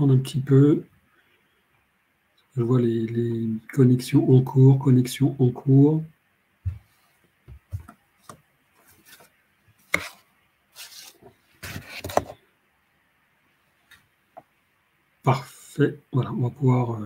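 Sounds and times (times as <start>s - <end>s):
rustling: 6.7s - 12.4s.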